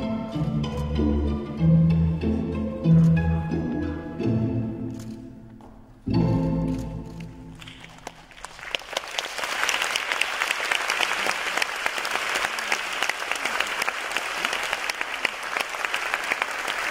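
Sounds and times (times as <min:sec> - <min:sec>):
orchestral music: 0:00.0 - 0:08.1
audience applauding: 0:07.5 - 0:16.9.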